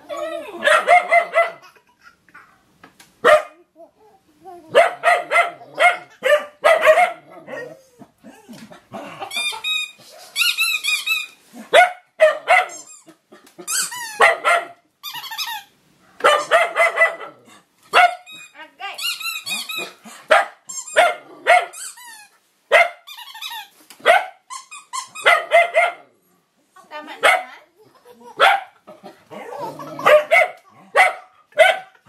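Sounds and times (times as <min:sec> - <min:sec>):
dog yelping: 0:00.0 - 0:01.7, 0:04.6 - 0:07.9, 0:10.4 - 0:18.4, 0:19.0 - 0:26.0, 0:29.4 - 0:32.0
dog barking: 0:00.6 - 0:01.6, 0:03.2 - 0:03.6, 0:04.7 - 0:07.8, 0:11.7 - 0:12.8, 0:14.2 - 0:14.8, 0:16.0 - 0:18.2, 0:19.8 - 0:21.8, 0:22.7 - 0:23.0, 0:24.0 - 0:24.4, 0:25.2 - 0:26.0, 0:27.2 - 0:27.5, 0:28.4 - 0:28.8, 0:30.0 - 0:32.0.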